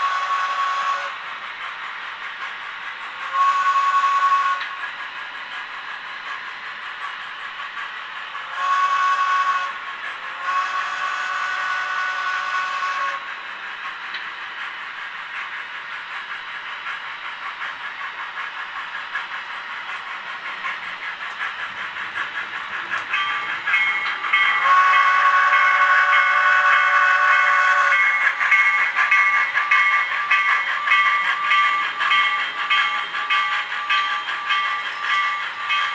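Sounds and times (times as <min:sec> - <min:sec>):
model locomotive chime whistle: 0:00.0 - 0:01.2, 0:03.3 - 0:04.8, 0:08.6 - 0:09.8, 0:10.4 - 0:13.2, 0:23.1 - 0:35.9
rhythmic locomotive chuffing: 0:00.0 - 0:35.9.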